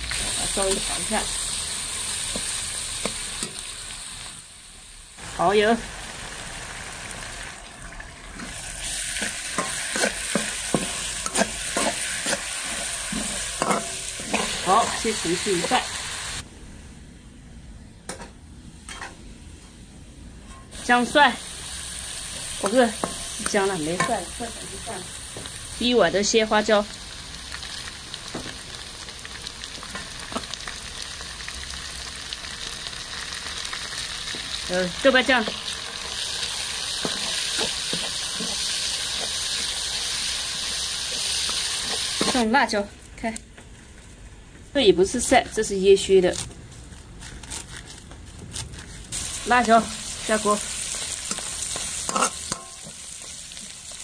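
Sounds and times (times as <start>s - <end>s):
garlic sizzling in oil: 0.0s - 16.4s, 20.7s - 46.1s, 48.5s - 54.0s
metal spatula scraping wok: 8.4s - 16.1s, 35.3s - 42.5s, 49.0s - 53.8s.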